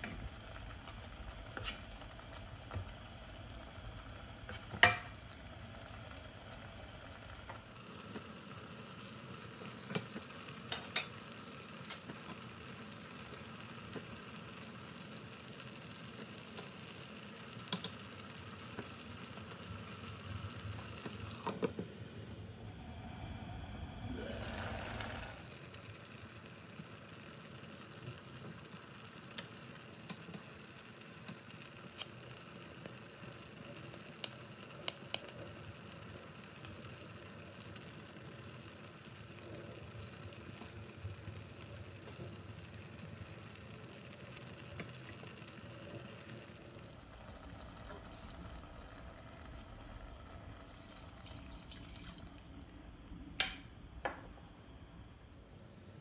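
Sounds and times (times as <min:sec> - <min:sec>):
pot simmering with low sizzle: 0:00.0 - 0:56.0
water pouring into pot: 0:23.9 - 0:52.8.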